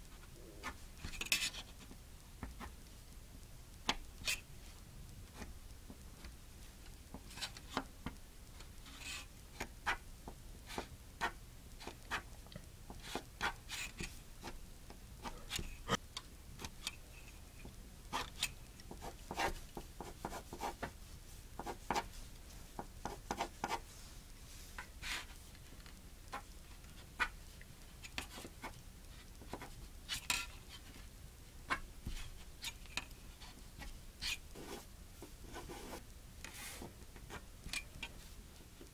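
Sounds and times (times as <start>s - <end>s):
pencil scratching on paper: 18.9s - 20.9s, 21.6s - 22.2s, 22.8s - 23.9s, 34.2s - 37.4s.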